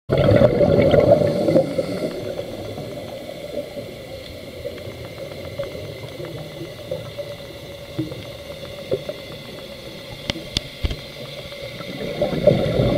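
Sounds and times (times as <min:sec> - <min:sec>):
scuba exhaust bubbles gurgling: 0:00.1 - 0:12.9
faint clicks: 0:02.6 - 0:12.0.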